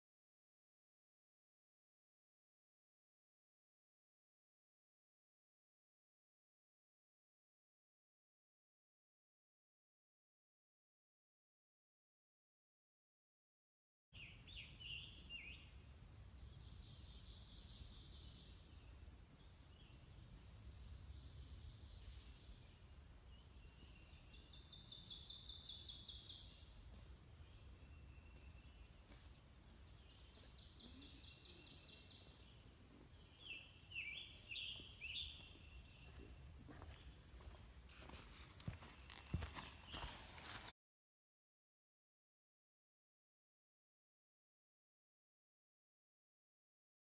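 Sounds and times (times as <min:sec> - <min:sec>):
songbirds singing: 0:14.2 - 0:37.6, 0:38.8 - 0:40.6.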